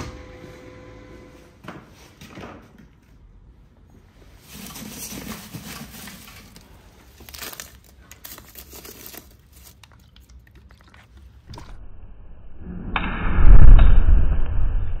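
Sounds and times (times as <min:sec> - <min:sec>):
coal lumps crunching and scraping: 0:04.3 - 0:11.2.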